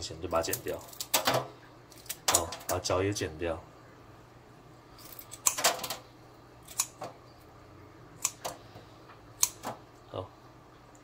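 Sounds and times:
kitchen shears snipping: 0:00.3 - 0:02.8, 0:05.0 - 0:06.0, 0:06.6 - 0:07.1, 0:08.2 - 0:08.6, 0:09.4 - 0:09.8.

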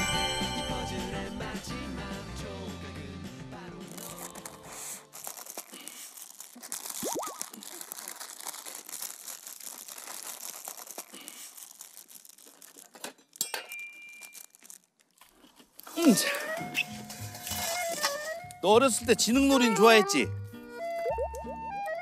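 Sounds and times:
music: 0:00.0 - 0:05.1, 0:16.2 - 0:22.0
paper crinkling and crumpling: 0:03.9 - 0:18.6.

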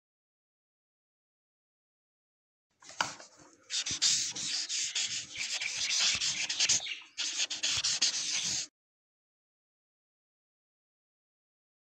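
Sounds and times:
pen scratching on paper: 0:03.7 - 0:08.7.

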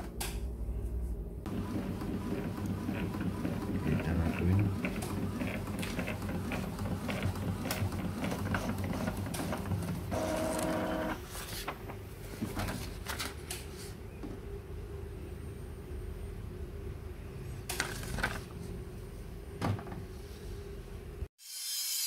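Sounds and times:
paper feeding: 0:01.5 - 0:11.8.

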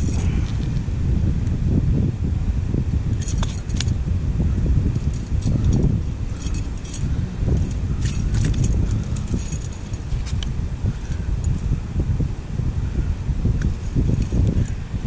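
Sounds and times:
steady low rumble: 0:00.0 - 0:15.0
metal chain jangling and clinking: 0:03.2 - 0:04.0, 0:04.8 - 0:11.7, 0:13.6 - 0:14.8.

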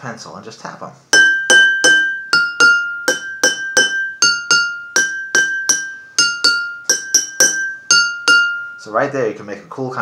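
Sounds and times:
pencil tapping water glasses: 0:01.2 - 0:08.8.

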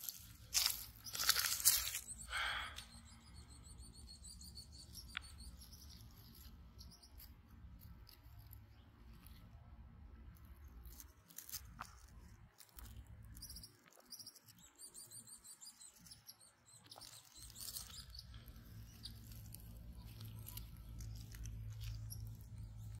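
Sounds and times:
soft rustles and clicks: 0:00.0 - 0:02.2
small birds chirping: 0:00.0 - 0:23.0.

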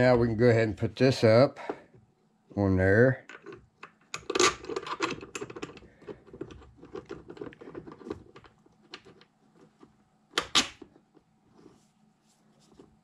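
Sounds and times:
metal parts clicking and rattling: 0:03.3 - 0:10.9.

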